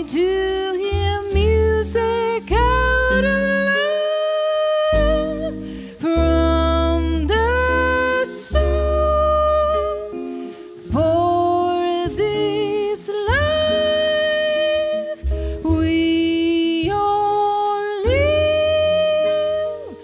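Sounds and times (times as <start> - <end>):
double bass: 0.0 - 20.0
guitars: 0.0 - 20.0.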